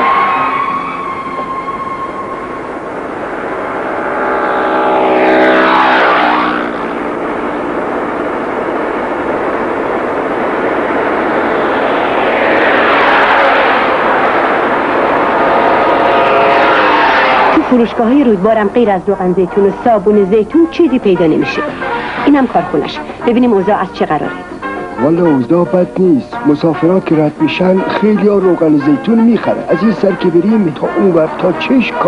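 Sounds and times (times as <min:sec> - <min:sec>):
car road noise: 0:00.0 - 0:32.0
vehicle passing by: 0:01.8 - 0:20.5.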